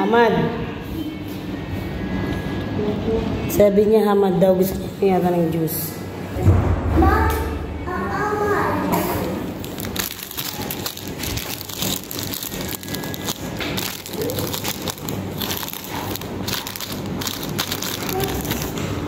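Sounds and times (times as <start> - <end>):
plastic packaging crinkling: 9.5 - 19.0.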